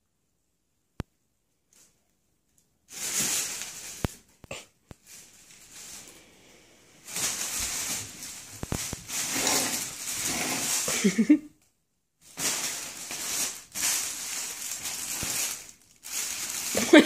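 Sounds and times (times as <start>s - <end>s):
fabric tunnel rustling and crackling: 7.0s - 11.2s, 12.3s - 17.0s.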